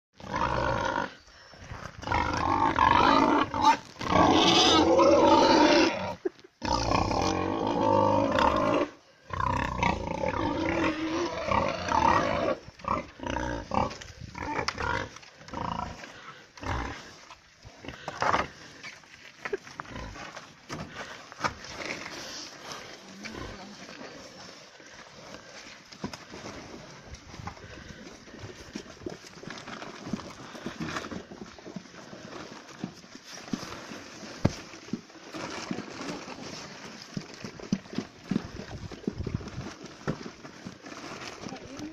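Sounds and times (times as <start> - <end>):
pigs squealing: 2.0 - 15.9.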